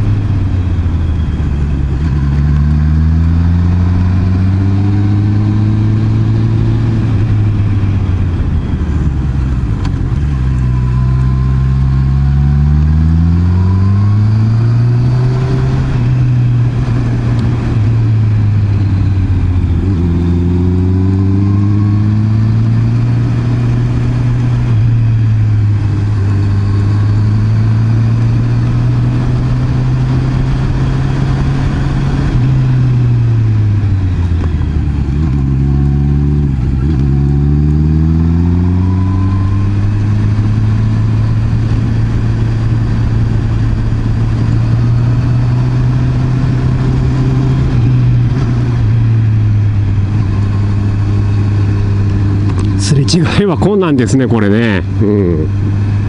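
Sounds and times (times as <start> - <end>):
motorcycle engine running: 0.0 - 56.0
road noise: 0.0 - 56.0.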